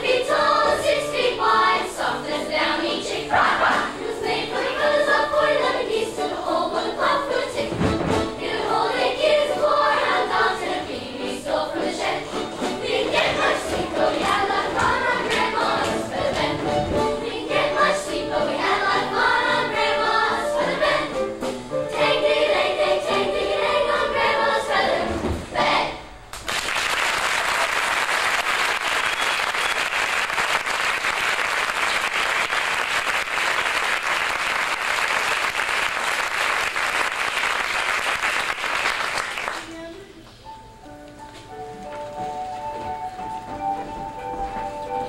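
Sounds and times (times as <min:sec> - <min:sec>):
choir singing: 0:00.0 - 0:26.2
audience applause: 0:26.3 - 0:39.7.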